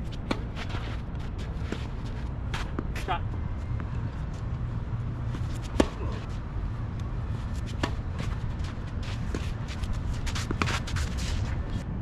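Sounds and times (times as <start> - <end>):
steady low rumble: 0.0 - 12.0
tennis racket hitting ball: 5.4 - 6.2, 7.7 - 8.3.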